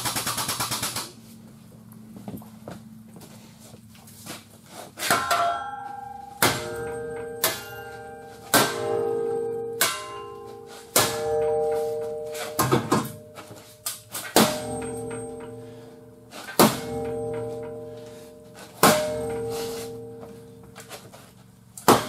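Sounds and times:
hammer striking metal ringing: 5.0s - 20.9s.

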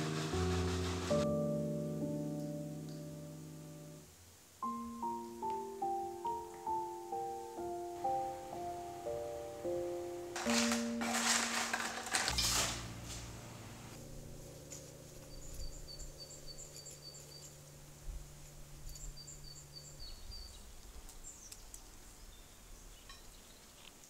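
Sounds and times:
loud rustling: 0.0s - 1.3s, 10.4s - 15.3s
faint low hum: 12.3s - 23.4s
small bird chirping: 15.1s - 17.7s, 18.8s - 23.9s.

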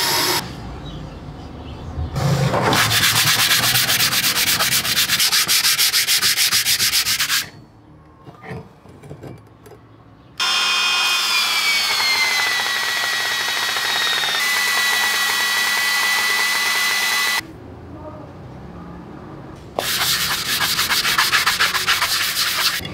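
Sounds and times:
belt sander whining: 0.0s - 0.4s, 10.4s - 17.4s
sanding block rubbing on metal: 2.7s - 7.6s, 19.8s - 22.8s
steel grinding on sander belt: 10.4s - 17.4s.

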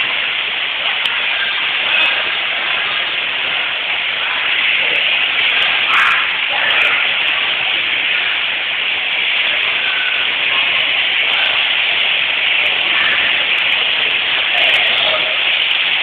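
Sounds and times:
rushing pool water: 0.0s - 16.0s
swimmers splashing: 0.0s - 16.0s.

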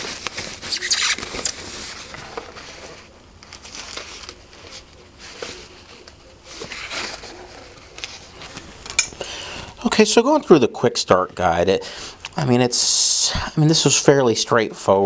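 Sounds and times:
plastic bag crinkling: 0.0s - 10.4s.

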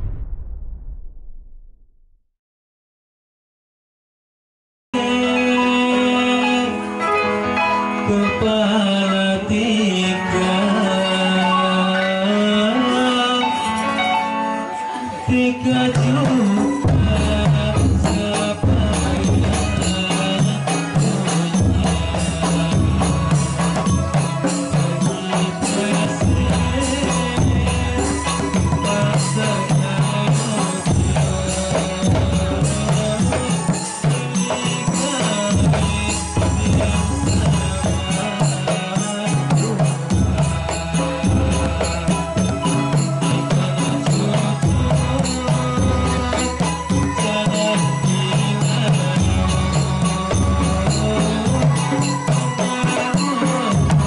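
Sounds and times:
deep drum pattern: 0.0s - 2.2s, 15.9s - 54.0s
man singing into a microphone: 5.0s - 54.0s
frame drums and jingles: 15.4s - 54.0s.

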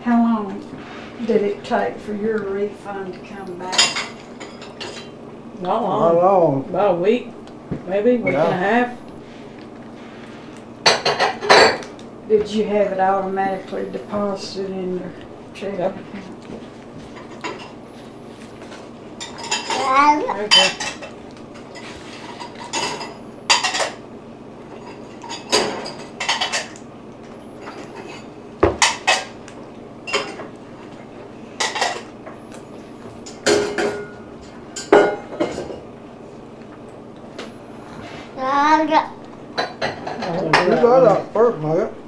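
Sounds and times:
dishes and cutlery clinking: 3.6s - 5.2s, 10.8s - 11.9s, 18.6s - 24.0s, 24.7s - 26.8s, 30.1s - 30.5s, 33.2s - 35.9s, 39.6s - 40.9s.

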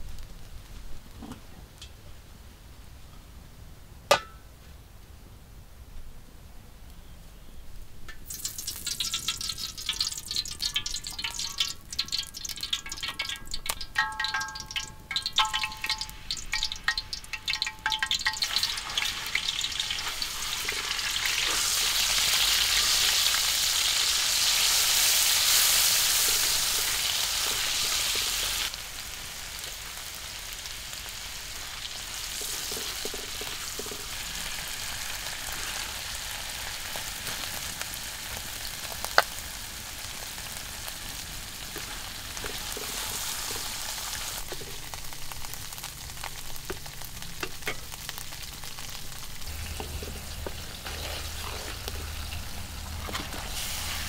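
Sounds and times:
hot oil crackling and spitting: 8.0s - 54.0s
food sizzling in a wok: 8.1s - 54.0s
spatula stirring in a wok: 8.2s - 28.7s, 31.4s - 36.5s, 41.6s - 54.0s.

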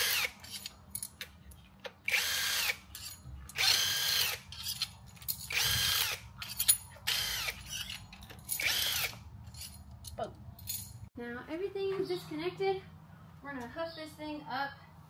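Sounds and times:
impact wrench bursts: 0.0s - 0.7s, 2.0s - 9.7s
light clicks of tool and bolts: 0.4s - 2.0s.

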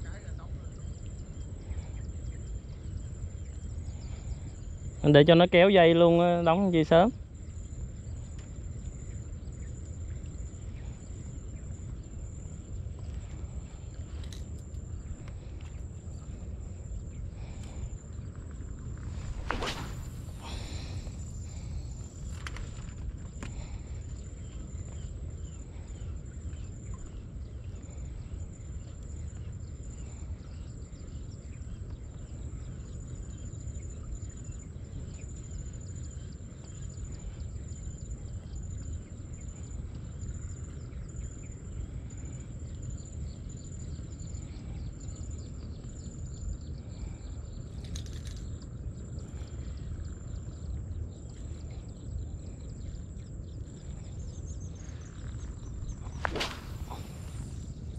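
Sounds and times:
wind rumbling on microphone: 0.0s - 47.7s, 48.4s - 57.9s
faint bird chirps: 0.0s - 57.9s
brief hiss: 19.2s - 21.2s, 56.1s - 57.7s.

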